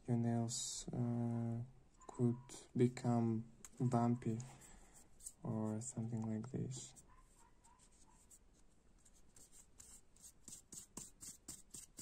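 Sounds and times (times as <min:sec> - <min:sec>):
nail file rasping on grip tape: 0:09.8 - 0:12.0.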